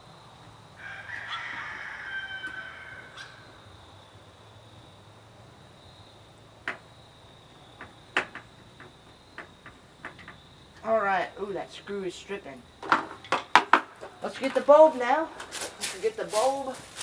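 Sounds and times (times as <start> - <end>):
insects droning: 0.0 - 17.0
rooster crowing: 0.8 - 3.6.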